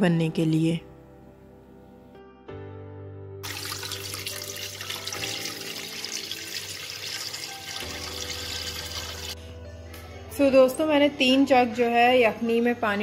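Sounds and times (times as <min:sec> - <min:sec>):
water pouring into a pot: 0:03.4 - 0:09.4.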